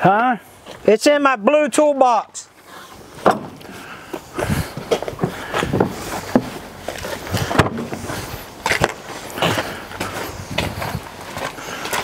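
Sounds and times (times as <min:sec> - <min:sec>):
footsteps on gravel: 0:02.5 - 0:12.0
sharp knocks and clatter: 0:03.2 - 0:03.6.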